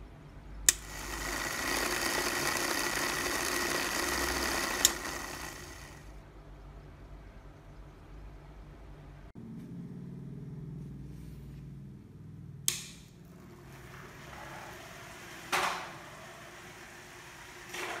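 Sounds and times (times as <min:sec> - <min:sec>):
small electric motor humming: 0:00.7 - 0:06.2, 0:13.6 - 0:18.0.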